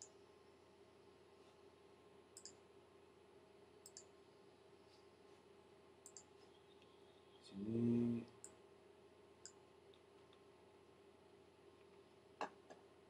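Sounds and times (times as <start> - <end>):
low steady hum: 0.0 - 13.0
computer mouse clicks: 2.4 - 2.6, 3.8 - 4.1, 6.0 - 6.9.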